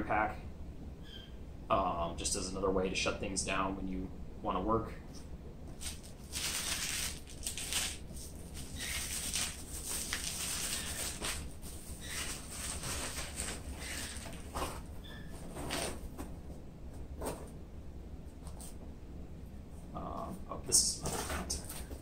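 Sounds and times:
bubble wrap crinkling: 0:05.7 - 0:16.3
cardboard box opening: 0:08.6 - 0:16.3.

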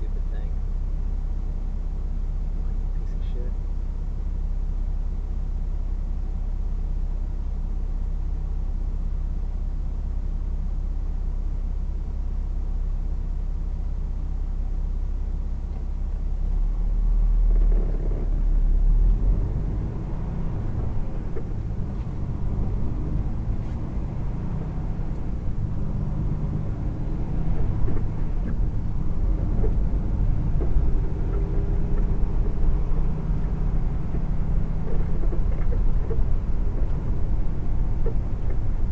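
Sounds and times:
vehicle engine idling and pulling away: 0:00.0 - 0:38.9
road noise: 0:15.8 - 0:38.9.

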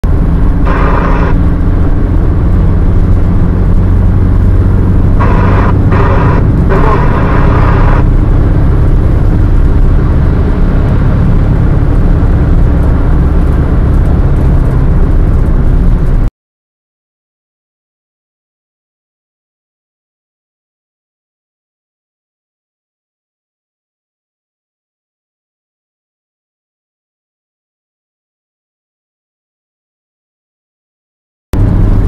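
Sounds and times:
car engine and tyre noise: 0:00.0 - 0:16.3, 0:31.6 - 0:32.0.

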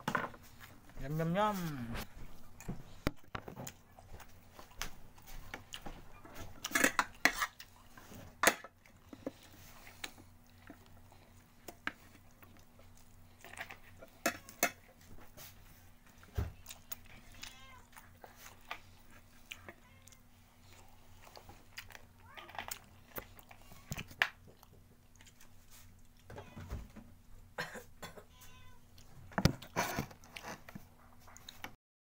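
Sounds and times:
faint steady hum: 0:00.0 - 0:31.7
person chewing: 0:02.4 - 0:26.3.

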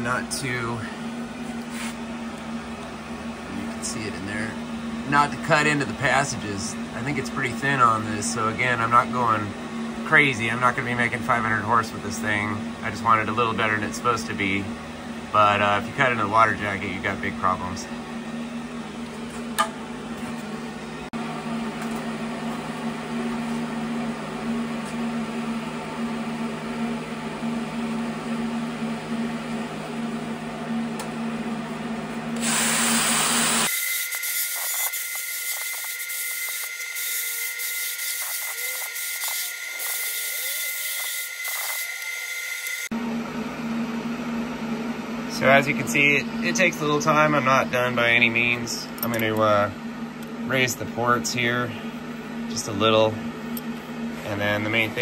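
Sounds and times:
die grinder grinding metal: 0:32.4 - 0:42.9.

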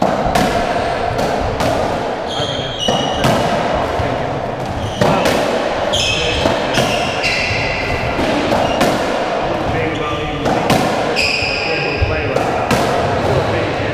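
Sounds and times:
shoes squeaking on wooden floor: 0:02.2 - 0:12.3.

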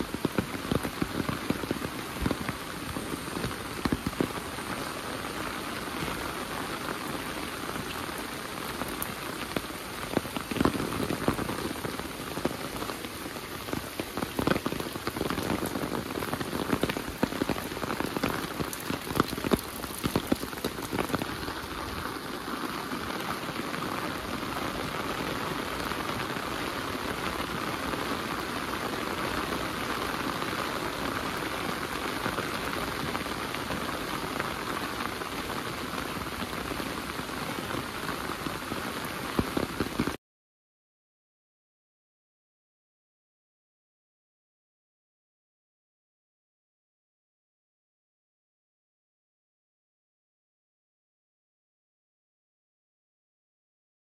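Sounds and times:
heavy rain falling: 0:00.0 - 0:40.2.

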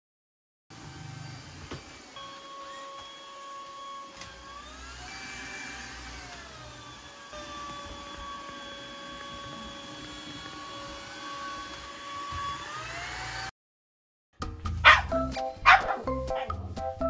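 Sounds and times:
vacuum cleaner humming: 0:00.7 - 0:13.5
background music: 0:14.4 - 0:17.0
dog barking: 0:14.8 - 0:16.6.

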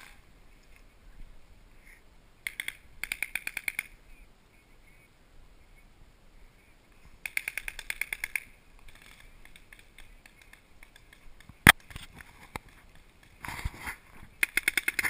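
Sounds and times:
paintball markers firing: 0:02.4 - 0:03.9, 0:07.2 - 0:13.4, 0:14.3 - 0:15.0.

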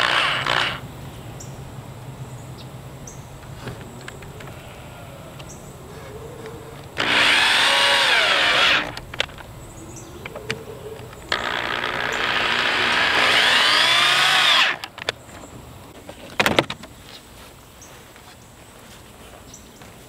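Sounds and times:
electric drill drilling into wood: 0:00.0 - 0:00.8, 0:07.0 - 0:09.0, 0:11.3 - 0:14.9.

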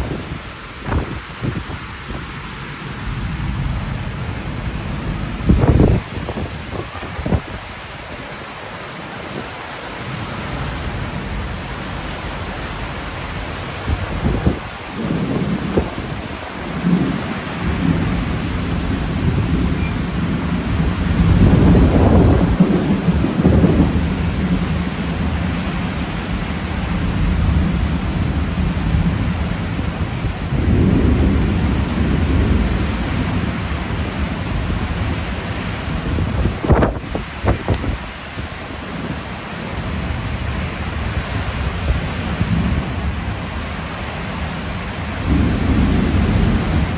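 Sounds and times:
heavy rain on metal roofs: 0:00.0 - 0:46.9
thunder rumbling: 0:03.1 - 0:07.9, 0:12.4 - 0:39.2, 0:44.4 - 0:46.9.

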